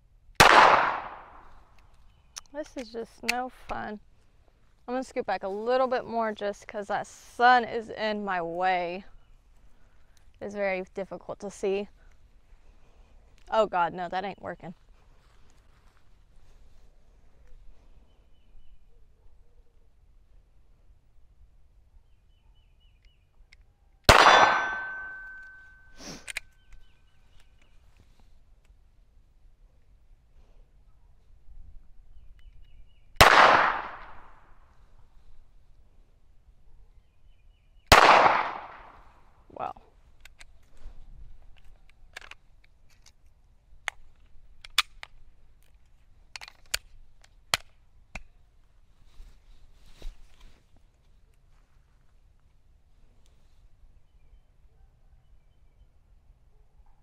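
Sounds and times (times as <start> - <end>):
rustle: 0.0 - 19.3, 22.2 - 55.2
pistol shot with metallic ring: 24.1 - 25.9
pistol slide and magazine clicks: 42.1 - 45.2, 46.3 - 48.3.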